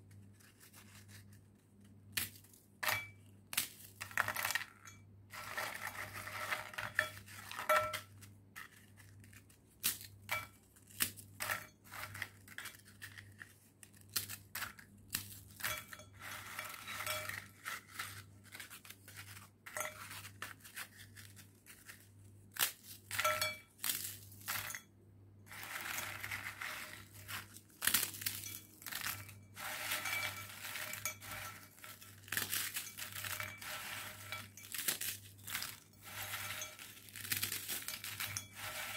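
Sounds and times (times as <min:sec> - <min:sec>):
pieces clinking on ceramic bowl: 0:02.8 - 0:03.2, 0:04.0 - 0:08.2, 0:15.5 - 0:17.8, 0:19.7 - 0:20.2, 0:23.1 - 0:24.9, 0:25.9 - 0:38.9
biscuits cracking and crunching: 0:08.5 - 0:15.7, 0:25.6 - 0:29.4, 0:30.6 - 0:33.5, 0:34.1 - 0:38.9.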